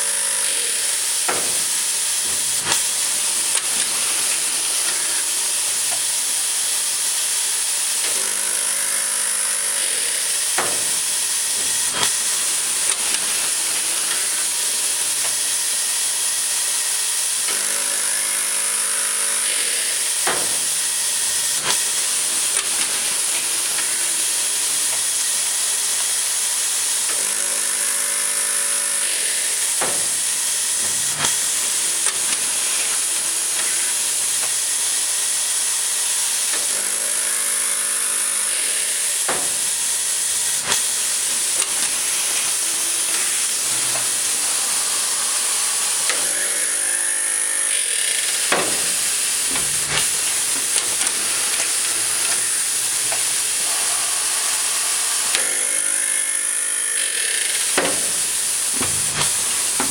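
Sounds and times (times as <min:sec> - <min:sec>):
pitched motor hum: 0:07.9 - 0:59.9
sharp machine knocks: 0:20.2 - 0:20.7, 0:39.3 - 0:47.1, 0:48.3 - 0:56.2, 0:57.7 - 0:59.9
steady air hiss: 0:48.6 - 0:56.1.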